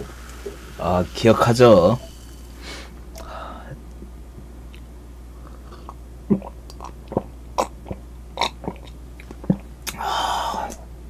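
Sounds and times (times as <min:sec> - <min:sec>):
breathy exhale: 0:02.6 - 0:03.8, 0:10.0 - 0:10.8
man swallowing a drink: 0:05.4 - 0:10.8.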